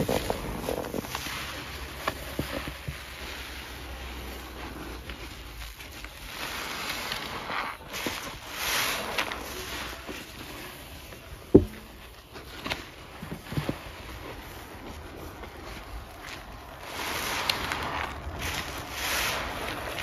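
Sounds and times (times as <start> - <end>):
wet sponges squelching: 0.0 - 20.0.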